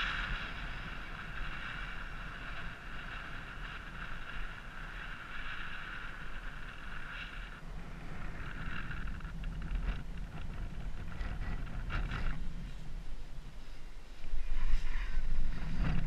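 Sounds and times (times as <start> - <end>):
wind rushing over microphone: 0.0 - 16.0.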